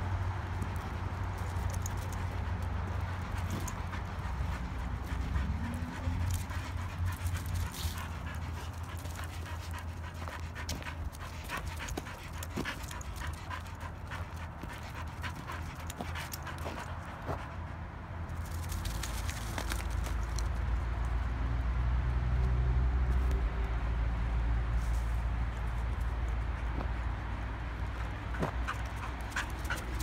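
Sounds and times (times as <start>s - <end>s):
dog panting: 0.5s - 17.8s, 26.1s - 30.0s.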